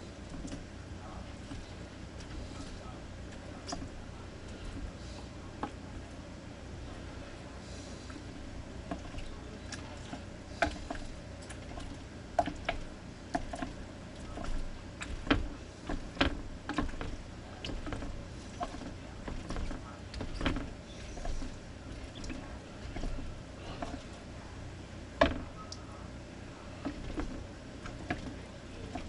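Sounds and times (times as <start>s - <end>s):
clicks and knocks of objects: 8.9s - 24.2s, 25.2s - 25.8s, 26.8s - 29.0s.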